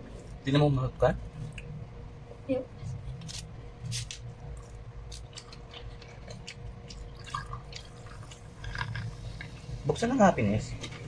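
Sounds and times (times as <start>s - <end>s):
eating clicks and smacks: 4.5s - 9.6s
cola pouring into glass: 7.1s - 9.2s.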